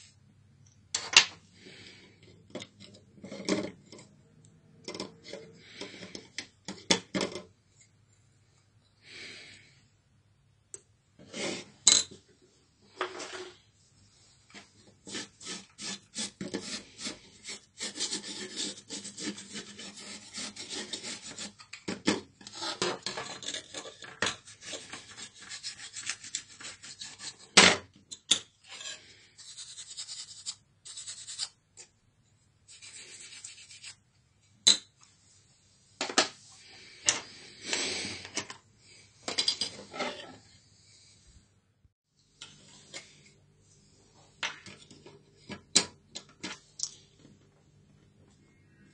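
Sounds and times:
rubbing and scraping on metal: 14.5s - 27.6s, 28.6s - 31.6s, 32.7s - 34.0s, 39.6s - 40.6s.

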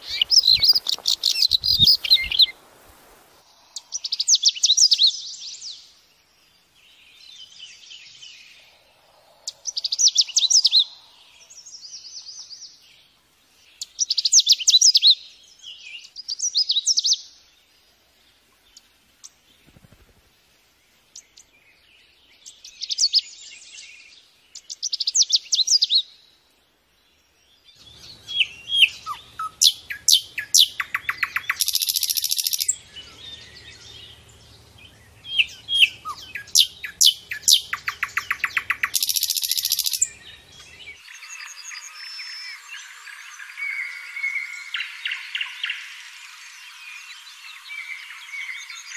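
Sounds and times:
nightingale song with trills: 0.0s - 2.7s, 3.4s - 48.9s.

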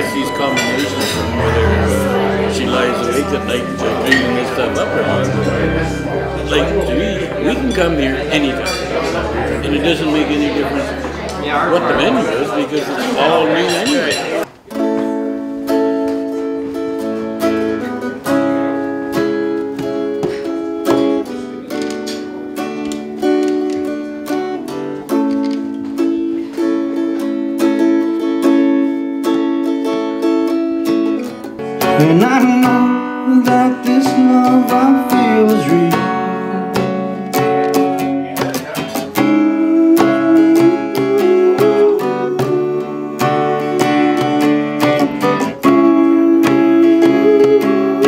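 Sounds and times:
person singing: 0.0s - 12.6s, 31.6s - 48.0s
acoustic guitar strumming: 0.0s - 48.0s
hand drum: 31.8s - 48.0s.

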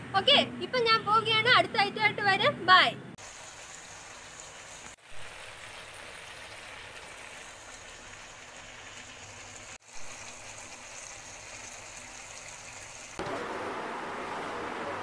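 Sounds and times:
curry sizzling in a frying pan: 3.2s - 13.2s.

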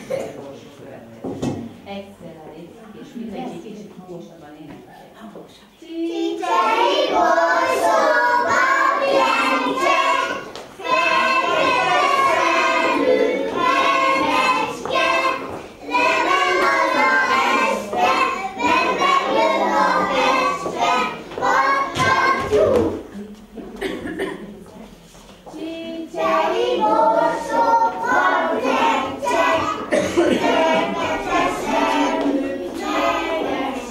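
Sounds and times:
young children singing: 5.7s - 23.2s, 25.5s - 33.9s.

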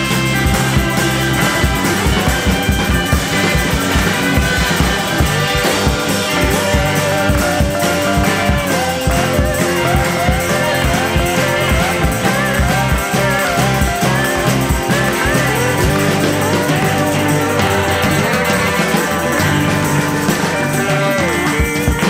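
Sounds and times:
drum beat: 0.0s - 22.0s
electric guitar: 0.0s - 22.0s
rock music: 0.0s - 22.0s.

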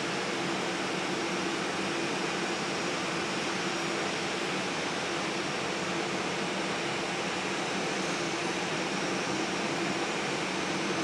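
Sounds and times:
jet engines running: 0.0s - 11.0s.

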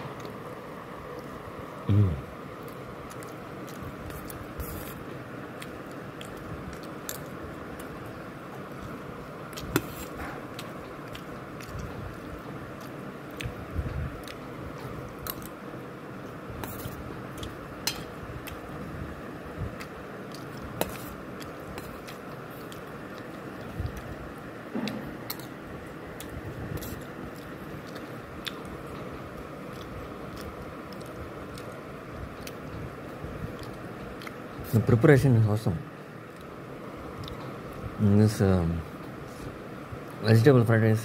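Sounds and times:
steady background hiss: 0.0s - 41.0s
person chewing fried food: 2.5s - 34.6s, 36.2s - 37.8s.

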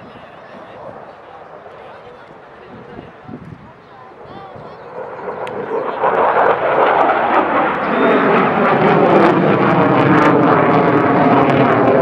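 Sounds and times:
fighter jet engine roaring: 0.0s - 12.0s.

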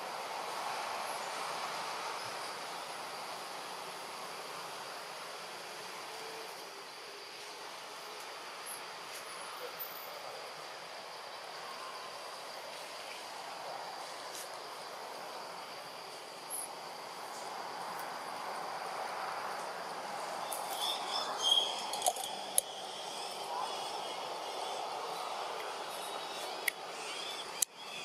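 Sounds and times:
background hiss: 0.0s - 28.0s
high insect drone: 0.0s - 28.0s.

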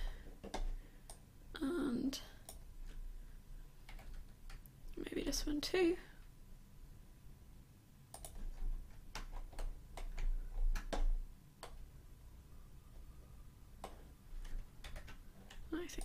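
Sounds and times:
faint low hum: 0.0s - 16.0s
computer keys clicking: 3.8s - 4.7s, 8.1s - 11.8s, 13.8s - 16.0s.

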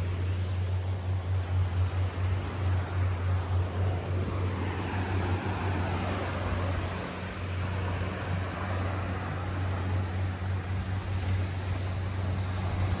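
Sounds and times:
low engine drone: 0.0s - 13.0s
small waves breaking on sand: 0.0s - 13.0s.

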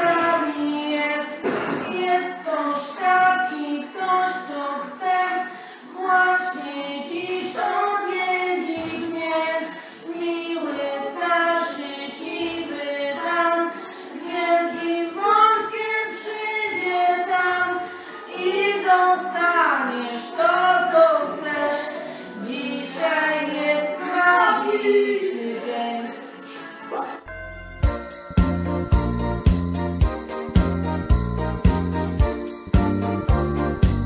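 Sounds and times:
young woman singing: 0.0s - 26.0s.

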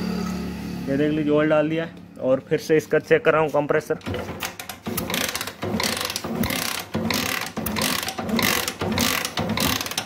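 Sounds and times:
motorcycle kick-starter kicks: 4.0s - 10.0s.

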